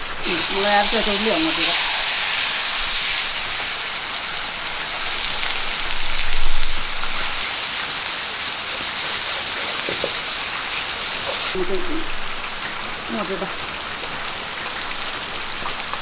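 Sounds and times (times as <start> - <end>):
paste sizzling in hot oil: 0.0 - 11.7.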